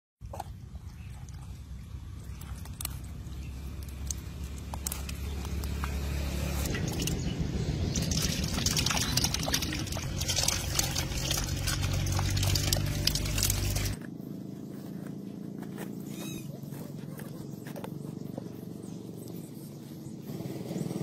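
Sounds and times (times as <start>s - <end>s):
eels splashing in shallow water: 0.2s - 14.0s.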